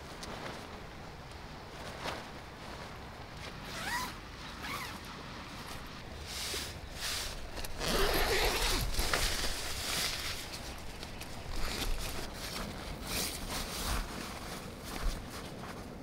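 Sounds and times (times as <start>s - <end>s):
nylon fabric rustling: 0.0s - 16.0s
tent zipper zipping: 3.6s - 5.0s, 6.6s - 10.4s, 11.4s - 14.1s.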